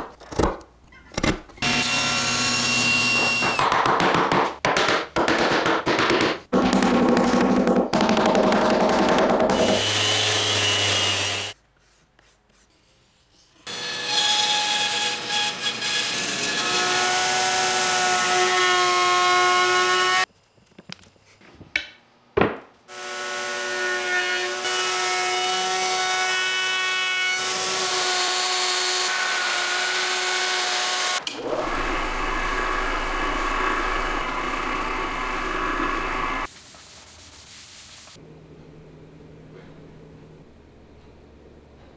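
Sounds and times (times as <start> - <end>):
router whining through wood: 27.3 - 36.5
orbital buffer humming: 31.3 - 36.5.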